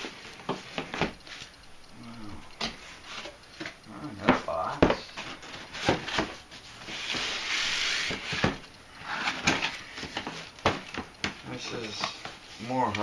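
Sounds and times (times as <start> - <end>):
cardboard scraping rustle: 5.2 - 10.3.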